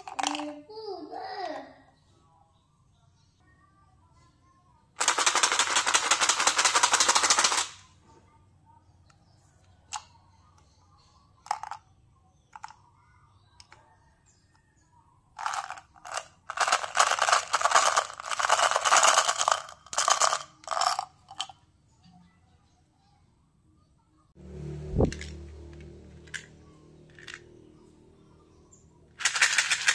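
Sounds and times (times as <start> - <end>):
candies rattling in plastic box: 0.0 - 0.5, 5.0 - 7.8, 11.5 - 11.8, 15.4 - 21.5, 27.1 - 27.4, 29.2 - 29.9.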